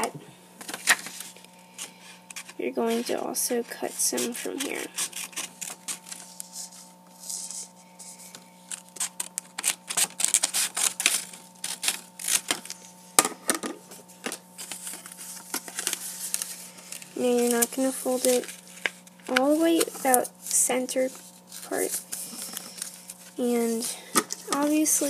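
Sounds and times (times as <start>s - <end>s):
paper rustling: 0.6s - 13.2s, 13.8s - 25.0s
scissors snipping paper: 3.8s - 6.6s, 8.7s - 12.8s, 14.6s - 20.3s, 21.0s - 25.0s.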